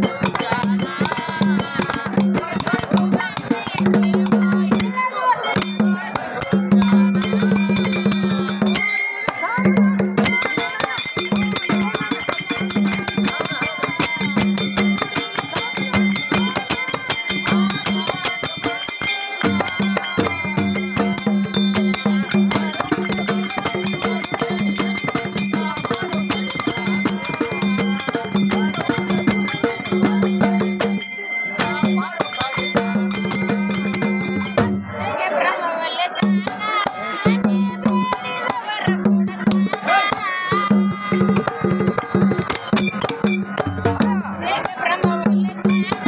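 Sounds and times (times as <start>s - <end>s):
person singing: 0.0s - 34.2s, 34.8s - 46.0s
hand cymbals clashing: 0.0s - 35.6s, 37.8s - 46.0s
percussion: 0.0s - 46.0s.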